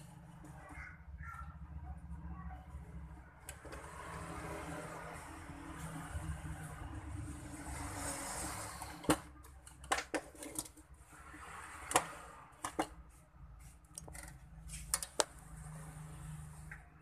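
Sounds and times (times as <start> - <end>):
plastic parts clicking together: 13.9 - 15.3.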